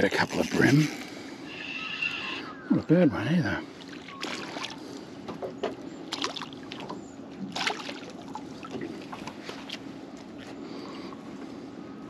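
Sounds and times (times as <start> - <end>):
fish splashing in water: 3.7 - 5.0, 6.1 - 9.8.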